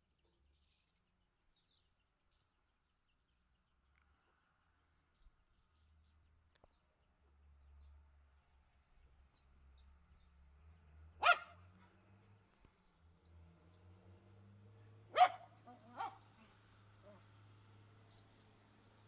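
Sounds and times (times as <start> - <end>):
dog barking: 11.2 - 11.7, 15.1 - 17.2
swallows chirping: 18.0 - 19.0.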